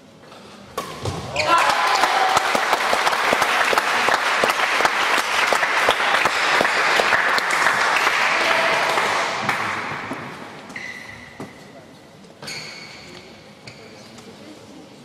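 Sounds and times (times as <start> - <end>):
spectators clapping: 1.4 - 10.3.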